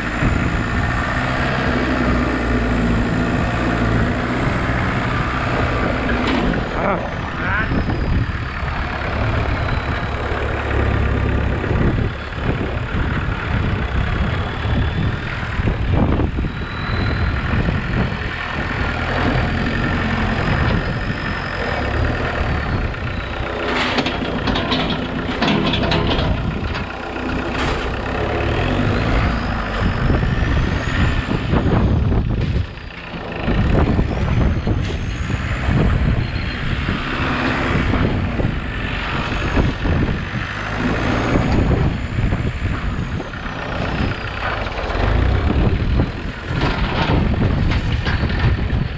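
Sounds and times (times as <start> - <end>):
tractor engine revving: 0.0 - 48.9
sharp rattles: 23.4 - 28.2.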